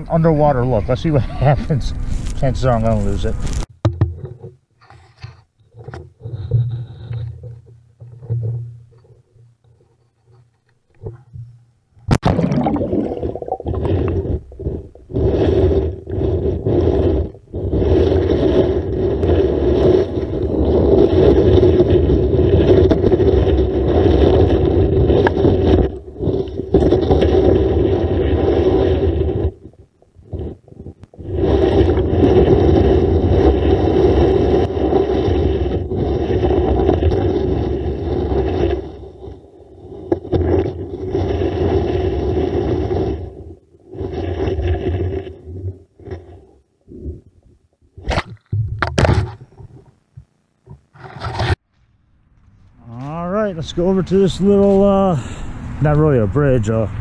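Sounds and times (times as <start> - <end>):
camera scraping along riverbed: 0.0 - 11.6, 13.3 - 47.4, 48.0 - 50.0, 50.6 - 57.0
camera hitting water: 12.0 - 14.4, 48.0 - 49.9.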